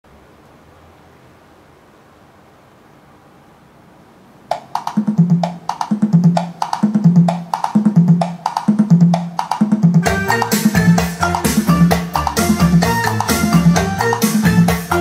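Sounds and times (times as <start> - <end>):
percussive clicks in rhythm: 4.5 - 15.0.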